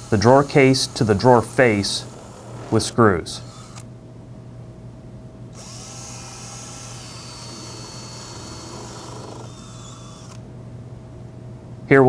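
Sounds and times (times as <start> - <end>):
cordless drill driving screws: 0.0 - 3.9, 5.6 - 10.4.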